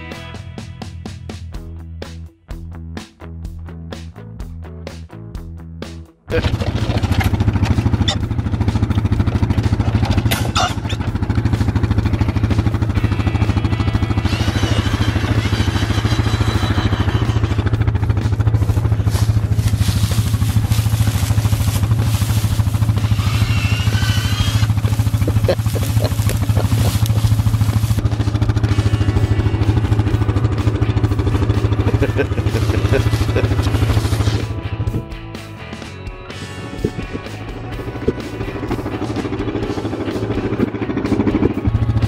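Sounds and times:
vehicle engine idling: 6.3 - 35.8, 36.4 - 42.0.

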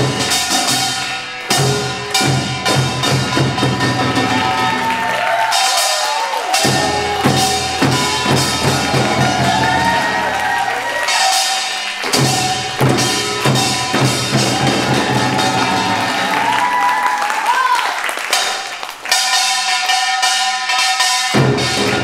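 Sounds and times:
hand drums beating: 6.5 - 10.6, 11.9 - 16.9.

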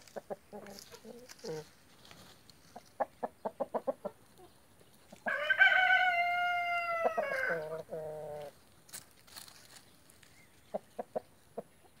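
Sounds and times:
rooster crowing: 5.3 - 7.8.

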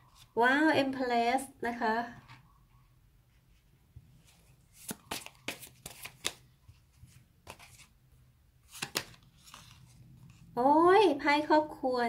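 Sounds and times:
cards snapping and tapping: 4.8 - 6.4, 8.7 - 9.6.

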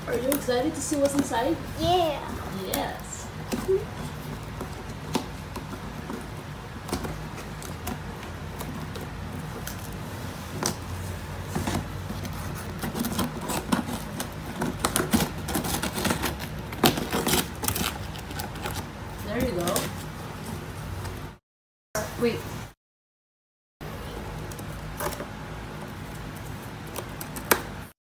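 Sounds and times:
scissors snipping packing tape: 12.2 - 18.8.

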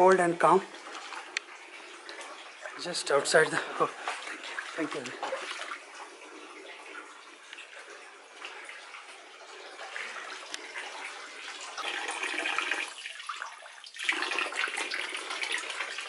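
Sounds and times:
water running and splashing: 0.0 - 16.0
water pouring over a hand: 10.0 - 16.0.

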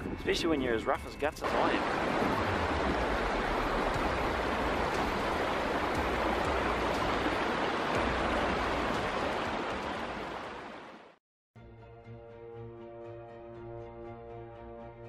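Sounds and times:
river water rushing over boulders: 1.4 - 11.2.

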